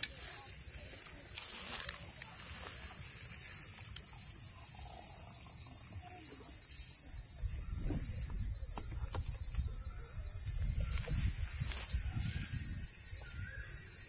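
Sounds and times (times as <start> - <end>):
insect chorus trilling: 0.0 - 14.0.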